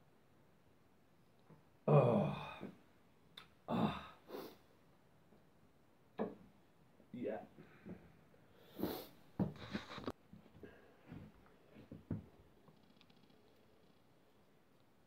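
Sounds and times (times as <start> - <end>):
man sighing: 1.9 - 2.8, 3.7 - 4.6.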